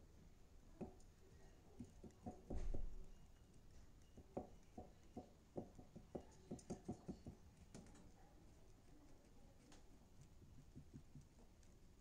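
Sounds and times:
light clicks and taps: 0:03.4 - 0:11.9.

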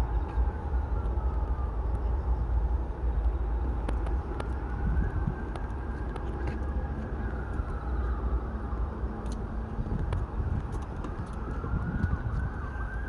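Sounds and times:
hum of distant vehicles: 0:00.0 - 0:13.0
wind buffeting microphone: 0:00.0 - 0:13.0.

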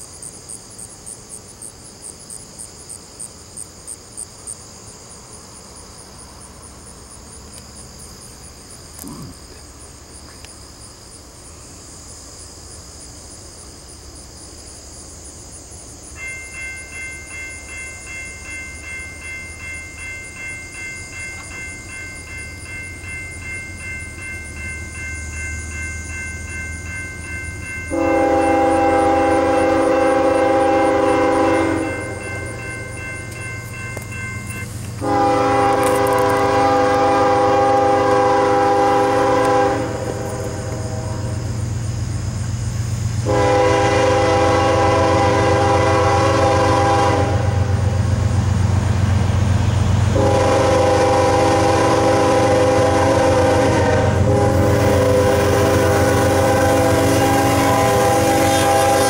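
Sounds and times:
crickets chirping: 0:00.0 - 0:59.0
diesel train rumbling: 0:00.0 - 0:59.0
crossing bell ringing: 0:15.9 - 0:41.9, 0:43.2 - 0:59.0
locomotive air horn blast: 0:27.9 - 0:32.2, 0:35.0 - 0:41.4, 0:43.2 - 0:48.0, 0:50.1 - 0:59.0.

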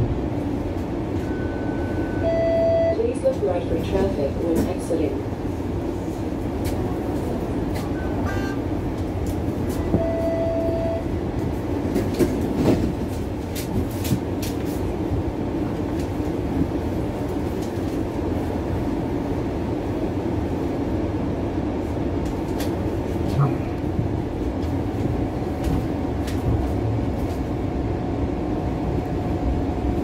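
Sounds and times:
streetcar rumble and hum: 0:00.0 - 0:30.0
short steady tone: 0:08.0 - 0:08.6.

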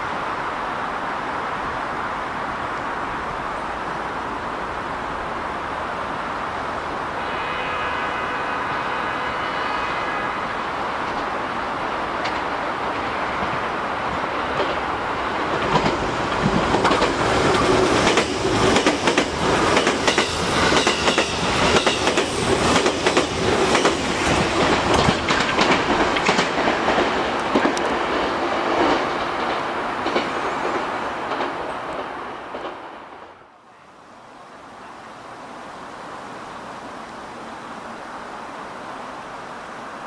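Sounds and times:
electric train rumble: 0:00.2 - 0:33.6
train wheel clicks over rail joints: 0:15.6 - 0:28.0.

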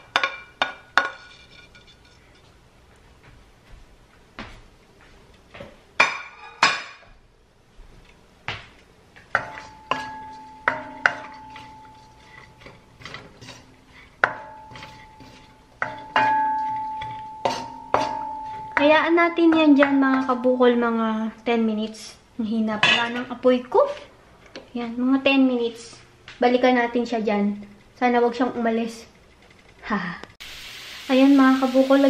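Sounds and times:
wooden spoon knocking on wok: 0:09.2 - 0:13.6, 0:14.2 - 0:20.5
pan ringing: 0:09.4 - 0:13.6, 0:14.2 - 0:21.0.

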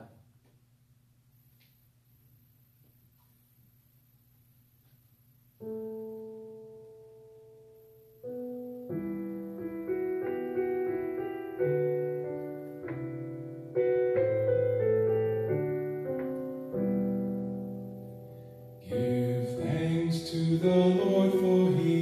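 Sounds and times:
piano chords: 0:05.6 - 0:22.0.

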